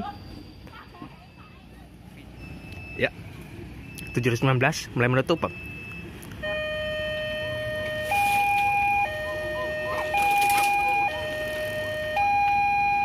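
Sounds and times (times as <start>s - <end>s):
level crossing two-tone alarm: 5.3s - 13.0s.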